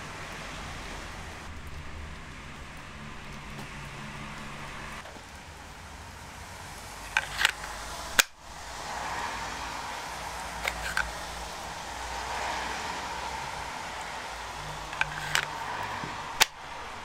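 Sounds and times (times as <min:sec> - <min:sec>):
knife sheath plastic clicks: 0:07.1 - 0:08.3, 0:10.6 - 0:11.2, 0:14.9 - 0:15.5.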